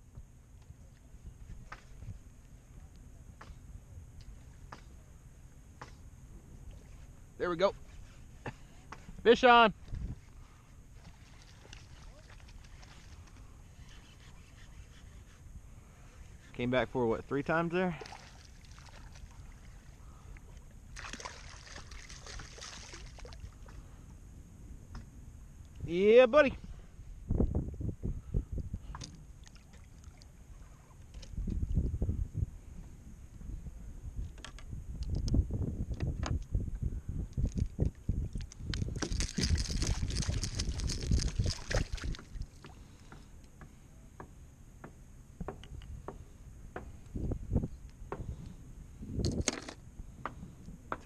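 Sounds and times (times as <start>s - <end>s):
low steady rumble: 14.8s - 26.0s, 26.6s - 51.0s
fish thrashing and splashing: 18.0s - 19.8s, 21.0s - 23.5s, 38.4s - 42.8s
taps and clicks handling fish: 28.9s - 29.2s, 34.3s - 36.5s, 49.2s - 51.0s.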